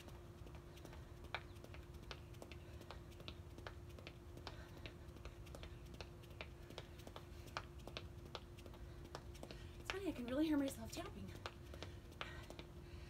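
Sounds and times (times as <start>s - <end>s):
sneakers tapping on concrete: 0.0s - 12.7s.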